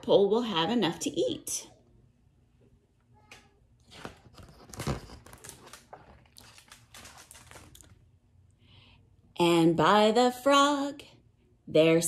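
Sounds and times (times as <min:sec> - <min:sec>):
book pages turning: 0:03.3 - 0:08.0.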